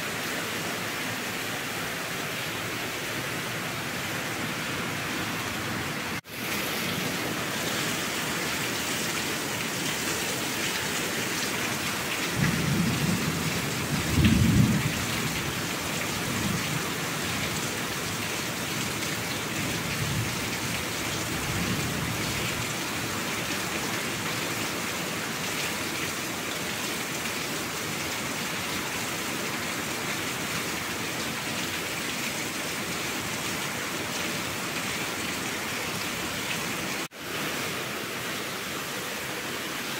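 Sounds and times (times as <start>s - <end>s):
heavy rain: 0.0s - 39.9s
thunder rumbling: 12.4s - 15.2s.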